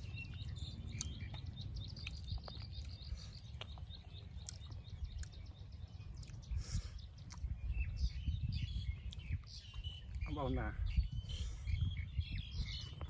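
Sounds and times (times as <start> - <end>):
small birds chirping: 0.0 - 13.0
steady low rumble: 0.0 - 13.0.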